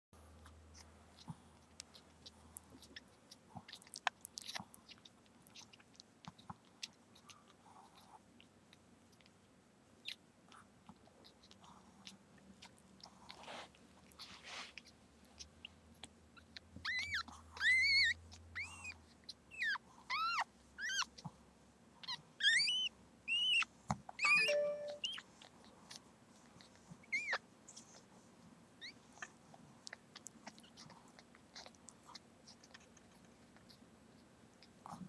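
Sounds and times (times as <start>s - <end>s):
soft wet licking: 0.2s - 24.3s, 25.0s - 35.0s
puppy squeaking cries: 16.4s - 21.2s, 22.0s - 25.2s, 27.1s - 27.4s.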